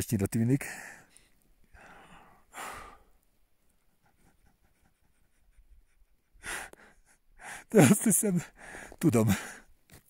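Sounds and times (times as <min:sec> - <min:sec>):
laboured breathing: 0:00.7 - 0:03.2, 0:05.9 - 0:07.7, 0:08.5 - 0:09.7.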